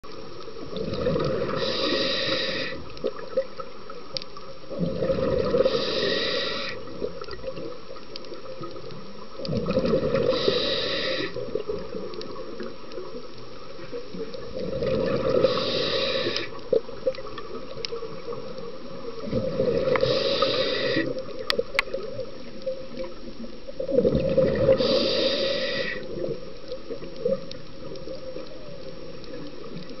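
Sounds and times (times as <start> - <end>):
steady underwater hiss: 0.1 - 30.0
exhaled bubbles rushing: 0.7 - 1.7, 4.7 - 5.8, 9.4 - 10.4, 14.4 - 15.7, 19.2 - 20.5, 23.8 - 24.9
diver breathing through regulator: 1.2 - 2.9, 4.8 - 6.8, 9.8 - 11.4, 14.8 - 16.6, 19.4 - 21.2, 24.6 - 26.2.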